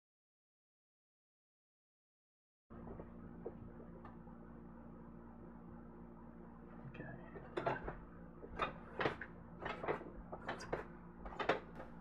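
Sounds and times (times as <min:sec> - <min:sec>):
metal chair knocks and clicks: 0:07.4 - 0:12.0.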